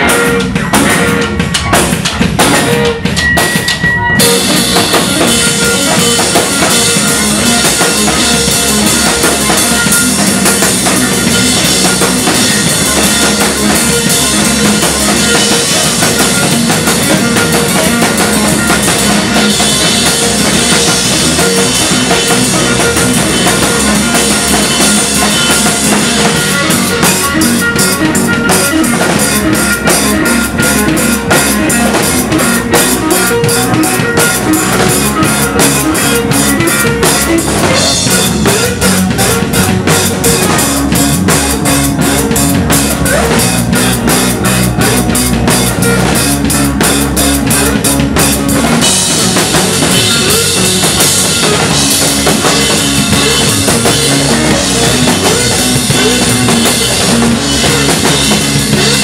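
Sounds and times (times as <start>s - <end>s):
fast busy drumming: 0.0s - 59.0s
rock band playing loud: 0.0s - 59.0s.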